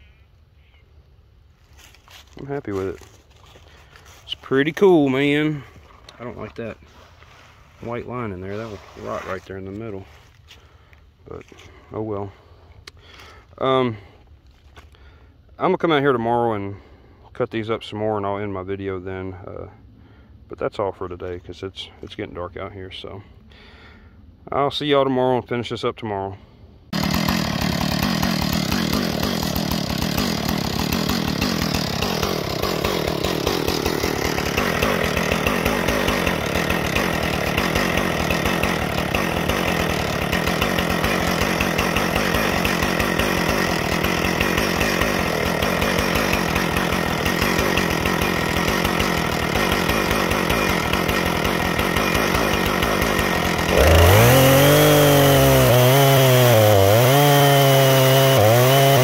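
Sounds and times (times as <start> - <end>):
chainsaw cutting log: 2.0 - 7.2, 7.8 - 9.9, 26.9 - 59.0
chainsaw idling: 2.1 - 10.9, 26.9 - 59.0.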